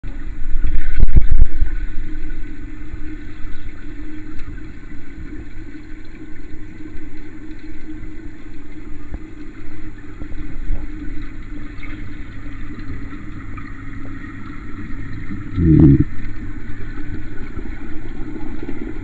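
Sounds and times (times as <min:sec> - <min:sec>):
low motor hum: 0:04.0 - 0:19.0.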